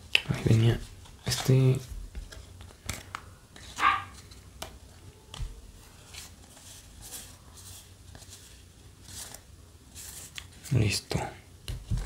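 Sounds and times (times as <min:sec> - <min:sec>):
cards sliding and swishing: 0:06.0 - 0:09.4.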